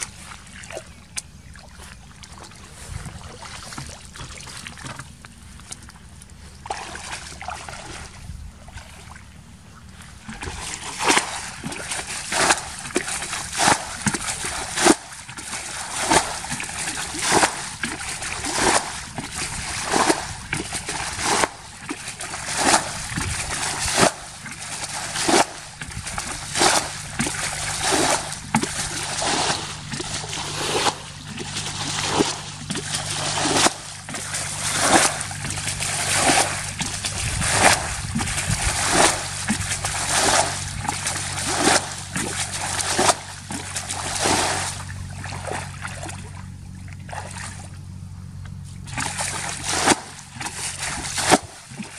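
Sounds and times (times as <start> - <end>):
water splashing from bucket: 0.0 - 9.3, 9.9 - 47.8, 48.8 - 51.9
water sloshing in pond: 0.0 - 51.9.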